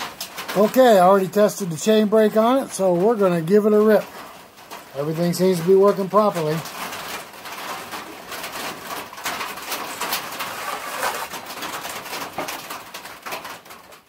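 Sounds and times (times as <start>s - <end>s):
rustling: 5.6s - 14.0s.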